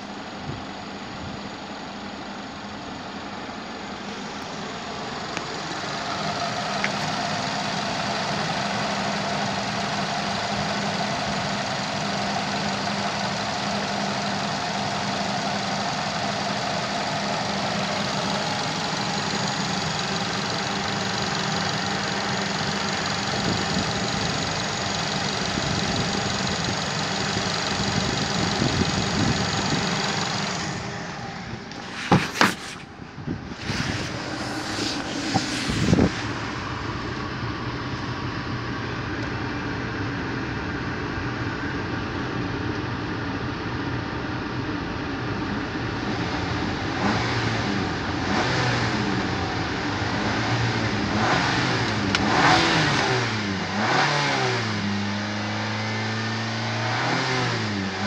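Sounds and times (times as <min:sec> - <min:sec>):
car engine idling: 0:00.0 - 0:45.6.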